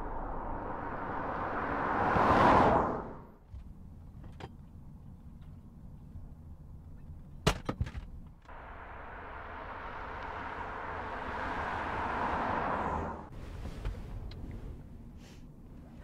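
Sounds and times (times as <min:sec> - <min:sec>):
car approaching on asphalt: 0:00.0 - 0:04.0, 0:08.5 - 0:15.9
road rumble inside car: 0:08.1 - 0:16.0.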